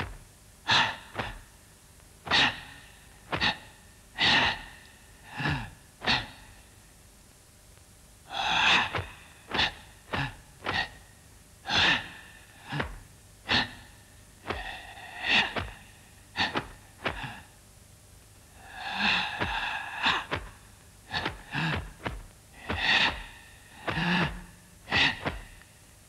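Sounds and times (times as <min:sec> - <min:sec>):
person grunting: 0:02.3 - 0:06.5, 0:08.3 - 0:11.0, 0:11.7 - 0:17.5, 0:18.6 - 0:25.6.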